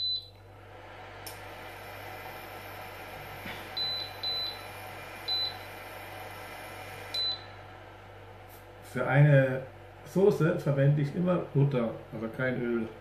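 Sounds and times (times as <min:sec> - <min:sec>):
hob running noise: 0:00.0 - 0:13.0
click: 0:01.2 - 0:01.4
hob touch controls beeping: 0:03.8 - 0:04.7, 0:07.1 - 0:07.5.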